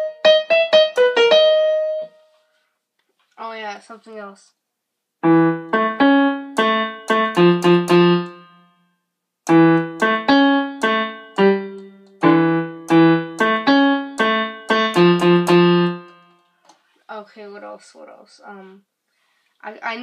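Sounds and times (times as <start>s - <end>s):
piano playing simple tune: 0.0s - 2.3s, 5.2s - 16.5s.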